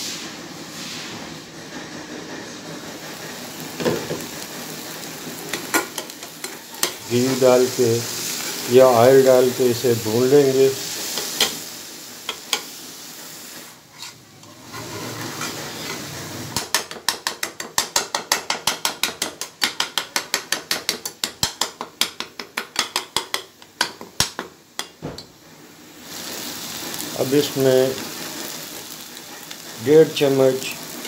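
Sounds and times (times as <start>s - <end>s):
meat sizzling in a pan: 3.1s - 25.0s, 25.7s - 31.0s
metal spatula chopping on pan: 15.4s - 25.1s.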